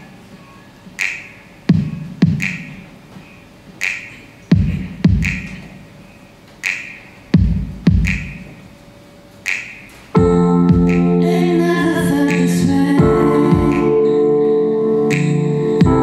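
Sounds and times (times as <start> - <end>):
snare hits with reverb: 1.0 - 2.8, 3.8 - 5.8, 6.6 - 8.6, 9.5 - 10.0
electronic kick drum thumps: 1.7 - 2.8, 4.5 - 5.7, 7.3 - 8.6, 10.2 - 11.2, 12.0 - 14.1, 15.8 - 16.0
held keyboard chord: 10.2 - 16.0.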